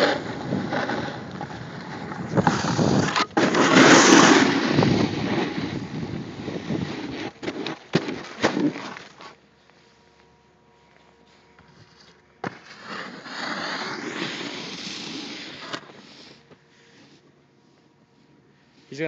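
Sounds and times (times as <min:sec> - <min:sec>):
wind rushing over microphone: 0:00.0 - 0:03.2, 0:03.8 - 0:07.1
snowboard scraping over snow: 0:00.0 - 0:09.3, 0:11.9 - 0:17.2.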